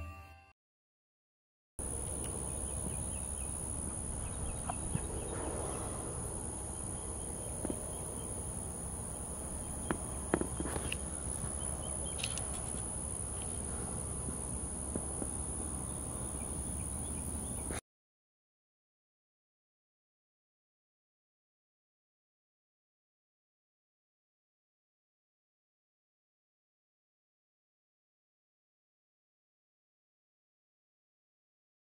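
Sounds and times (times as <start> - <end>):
high-pitched insect drone: 1.8 - 17.7.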